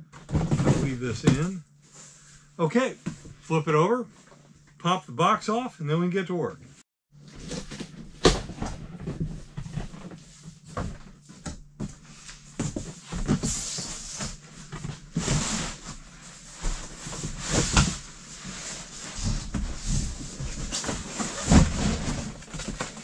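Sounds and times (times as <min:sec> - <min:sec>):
cardboard scraping and rubbing: 0:12.0 - 0:23.0
box knocks and bumps: 0:19.2 - 0:23.0.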